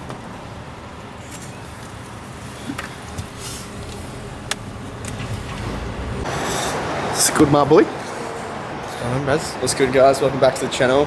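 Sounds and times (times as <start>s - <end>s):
car engine idling: 1.7s - 7.2s.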